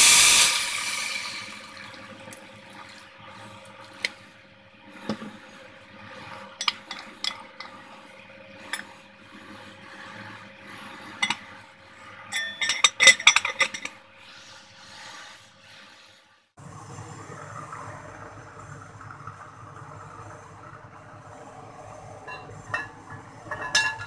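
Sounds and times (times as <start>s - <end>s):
pot lid clattering: 12.3s - 13.9s, 22.3s - 24.0s
cooking pot clicks and knocks: 22.3s - 24.0s.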